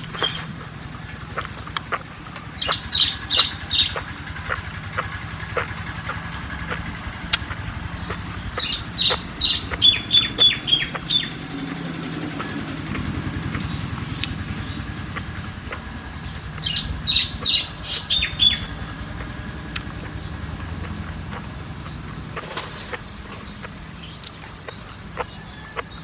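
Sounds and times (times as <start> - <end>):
bird chirping: 0.0 - 26.0.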